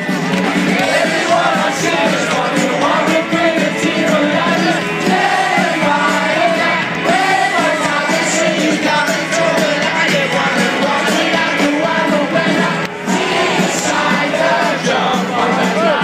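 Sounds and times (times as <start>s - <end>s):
live rock band: 0.0s - 16.0s
man singing: 0.8s - 6.4s, 7.5s - 12.8s, 14.4s - 16.0s.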